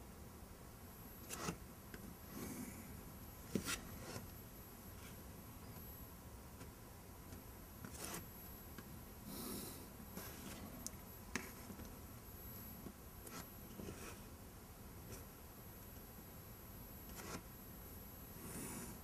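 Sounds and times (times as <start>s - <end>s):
pencil scratching on paper: 7.9s - 8.3s.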